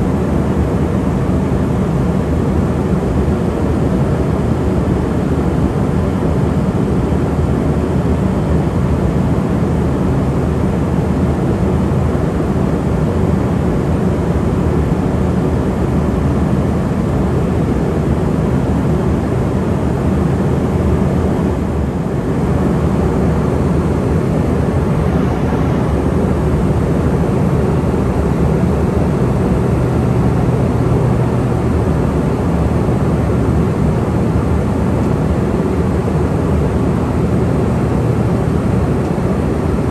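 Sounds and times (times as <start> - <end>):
jet engine drone: 0.0 - 39.9
air rushing past fuselage: 22.2 - 29.5.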